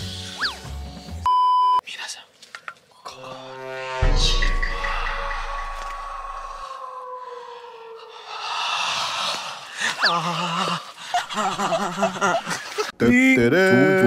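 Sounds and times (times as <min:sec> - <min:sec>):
breathy hushed voices: 0:02.9 - 0:03.8, 0:04.7 - 0:11.6
men shouting and laughing: 0:10.0 - 0:13.0.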